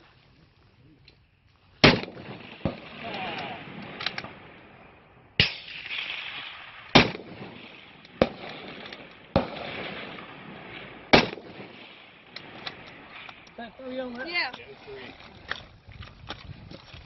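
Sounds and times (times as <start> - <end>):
rifle shots with echo: 1.8 - 13.6.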